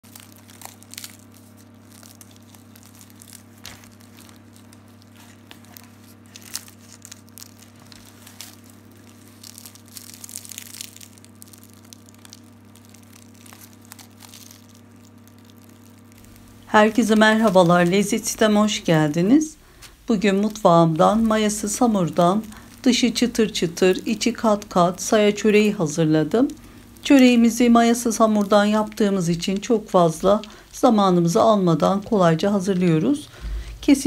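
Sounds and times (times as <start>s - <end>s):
flaky crust crackling: 0.0s - 33.3s
low hum: 0.0s - 34.0s.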